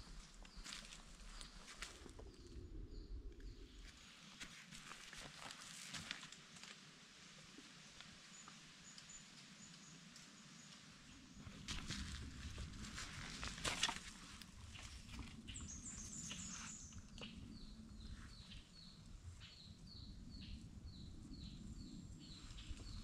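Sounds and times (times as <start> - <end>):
footsteps crunching dry leaves: 11.6 - 15.0.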